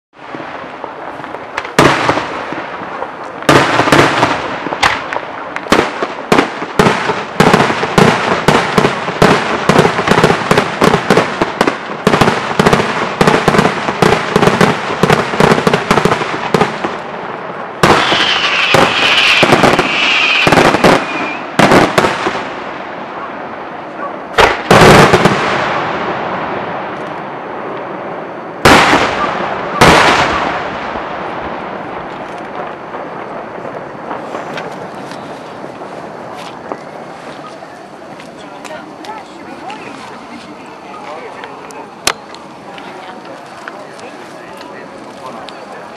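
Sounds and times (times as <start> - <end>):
high-pitched whistling: 18.4 - 21.6.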